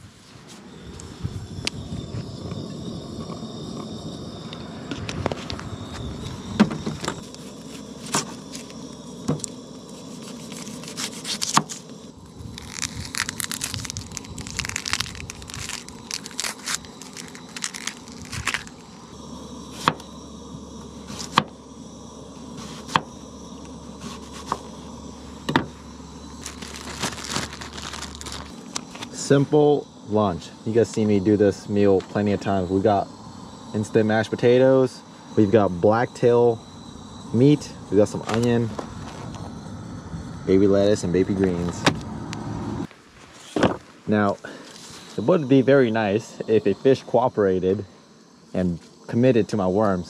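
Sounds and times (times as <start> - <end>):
plastic bag crinkling: 12.5 - 19.0, 26.4 - 29.2
plastic water bottle crackling: 12.5 - 19.0, 26.4 - 29.2.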